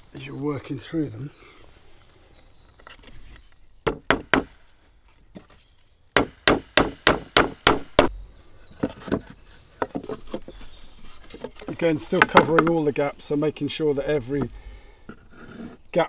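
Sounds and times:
hatchet hammering nails into wood: 3.8 - 4.6, 6.2 - 8.2.

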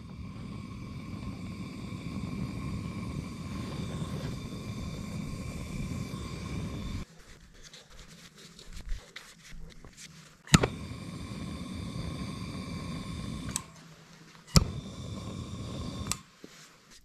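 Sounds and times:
heat gun blowing: 0.0 - 7.1, 10.5 - 16.6
loud sharp click: 10.5 - 10.8, 14.5 - 14.9.

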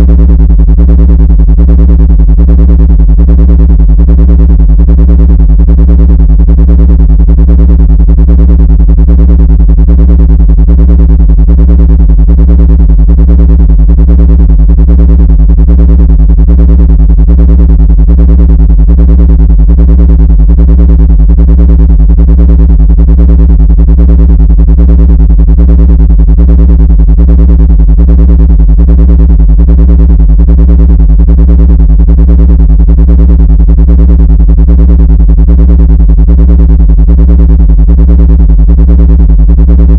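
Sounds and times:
synthesized low drone: 0.0 - 12.5, 13.9 - 25.7.

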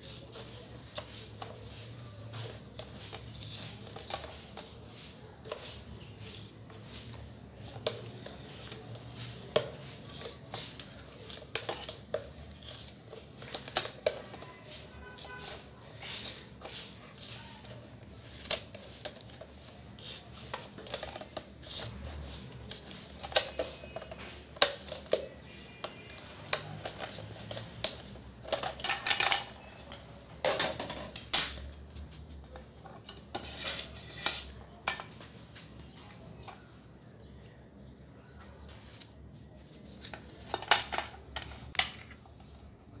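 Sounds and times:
scissors snipping plastic: 7.6 - 14.5, 15.2 - 25.3.

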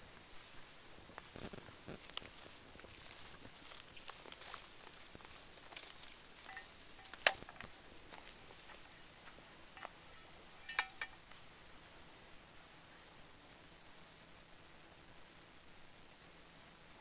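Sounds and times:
footsteps through grass: 0.0 - 11.5
sharp clicks and clinks: 10.6 - 11.2.

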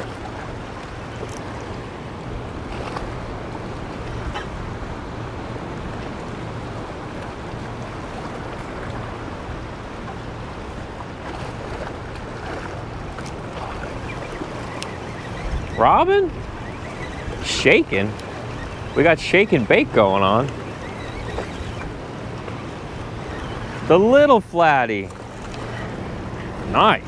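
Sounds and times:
wind on microphone: 2.3 - 23.9
waves sloshing among rocks: 7.1 - 27.0.

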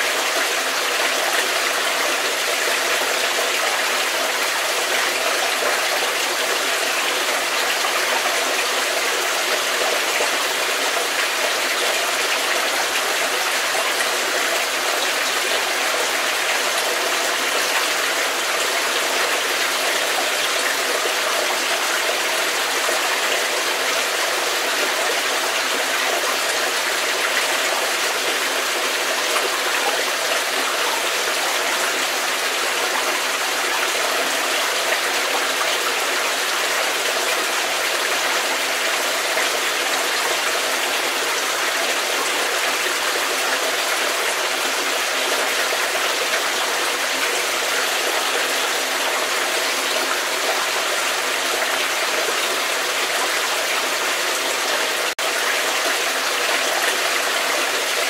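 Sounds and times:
stream of water flowing: 0.0 - 58.0.

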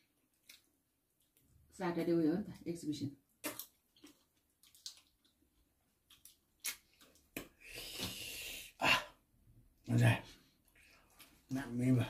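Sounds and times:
wet chewing and sucking smacks: 0.3 - 1.5, 3.4 - 8.2.

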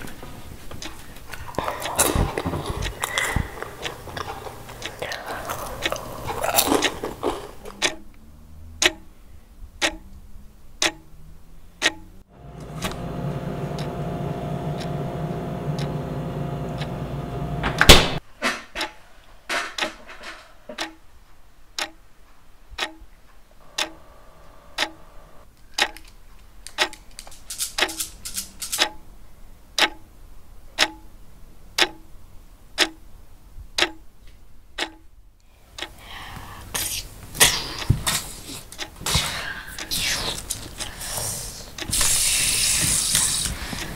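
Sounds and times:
clock ticking: 0.7 - 9.1, 9.7 - 11.2, 11.8 - 18.2, 19.8 - 20.0, 20.7 - 24.2, 24.8 - 25.0, 25.7 - 26.1, 26.7 - 29.2, 29.8 - 30.2, 30.8 - 31.2, 31.8 - 33.1, 33.8 - 34.1, 34.8 - 35.1, 35.7 - 36.2, 36.8 - 43.9
steady hum with held tones: 11.6 - 18.2, 23.4 - 25.5
loud hit: 17.6 - 18.2.

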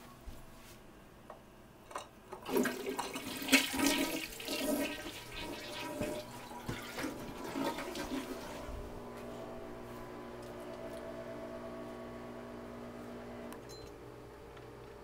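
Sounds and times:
toilet flushing: 2.4 - 9.0.

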